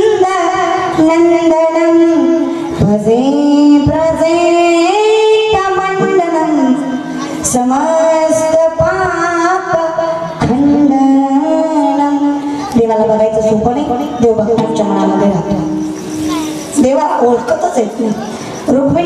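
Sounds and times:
woman singing devotional chant: 0:00.0 - 0:15.9, 0:16.7 - 0:19.0.

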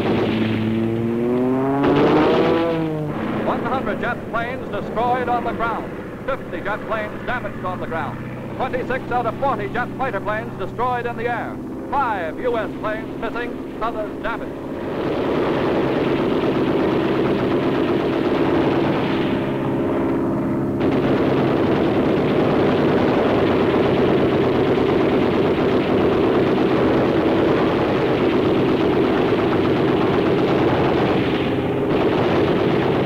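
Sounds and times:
rapid machine-gun fire: 0:00.0 - 0:03.0, 0:12.0 - 0:19.8, 0:20.8 - 0:33.0
aircraft engines droning: 0:00.0 - 0:33.0.

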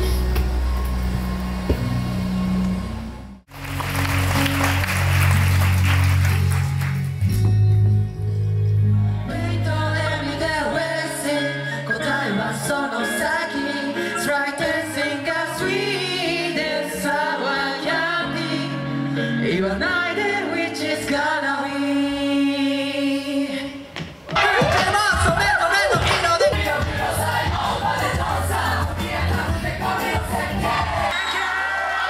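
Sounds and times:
backing music: 0:00.0 - 0:22.4, 0:23.9 - 0:31.2
male vocal group singing: 0:09.3 - 0:23.8, 0:24.4 - 0:31.5.

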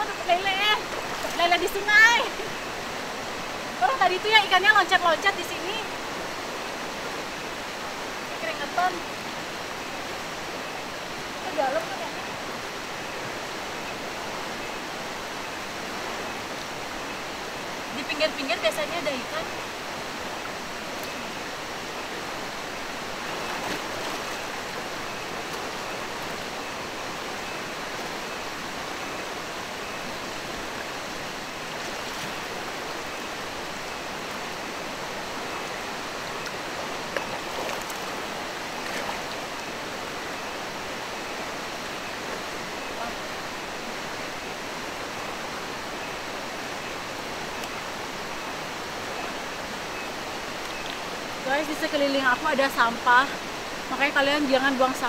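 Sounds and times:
river rushing over rocks: 0:00.0 - 0:55.0
faint splashes: 0:23.2 - 0:24.6.

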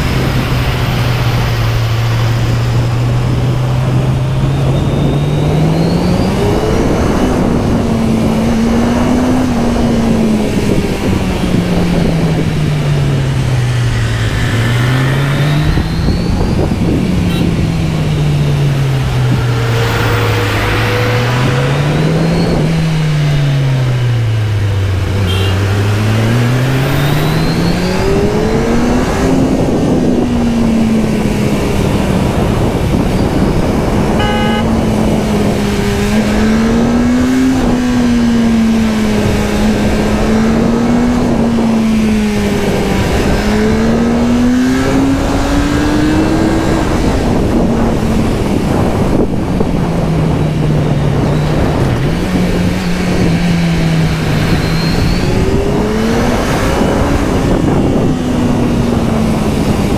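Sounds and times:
motorcycle engine revving: 0:00.0 - 0:59.9
wind rush: 0:00.0 - 0:59.9.

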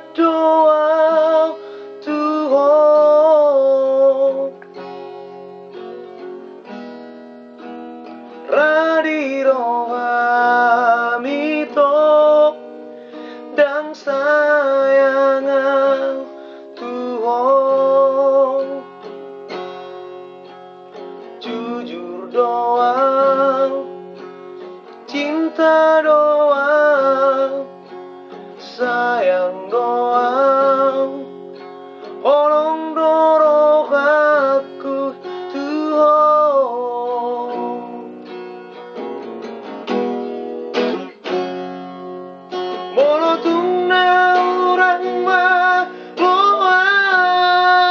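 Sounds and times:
person singing: 0:00.0 - 0:04.8, 0:08.4 - 0:18.9, 0:21.4 - 0:24.0, 0:24.9 - 0:27.8, 0:28.5 - 0:31.4, 0:32.2 - 0:38.2, 0:42.7 - 0:47.9
acoustic guitar strumming: 0:00.0 - 0:47.9.

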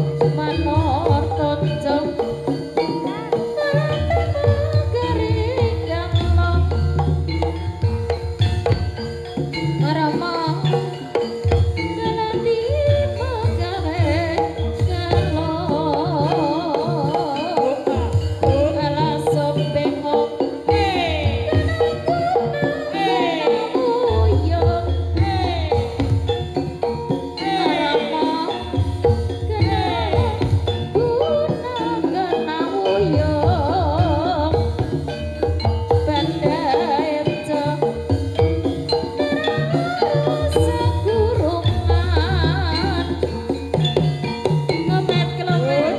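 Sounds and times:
person singing ornamented melody: 0:00.0 - 0:07.2, 0:12.0 - 0:26.2, 0:27.1 - 0:35.0, 0:35.9 - 0:43.4
gamelan music: 0:00.0 - 0:45.9
hand drums beating: 0:00.0 - 0:45.9.

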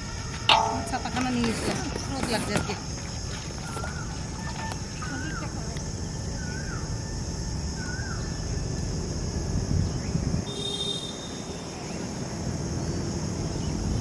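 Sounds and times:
high insect drone: 0:00.0 - 0:14.0
bird calls: 0:00.8 - 0:06.9.

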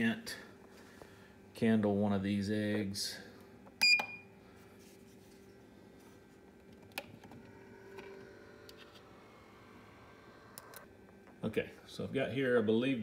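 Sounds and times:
incubator hum: 0:05.4 - 0:13.0.

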